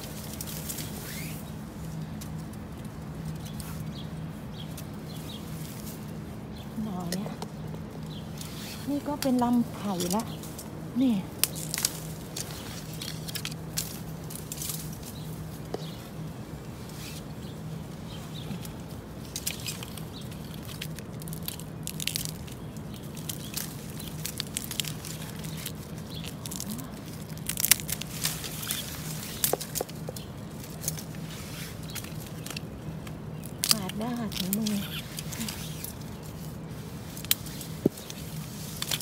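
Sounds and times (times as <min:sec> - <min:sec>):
dry bamboo and leaves crackling: 0:00.0 - 0:39.0.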